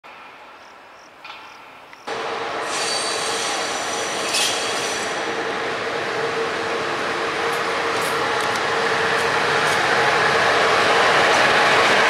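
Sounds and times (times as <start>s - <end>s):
electric locomotive rolling: 2.1s - 12.0s
wheels squealing on rails: 2.1s - 12.0s.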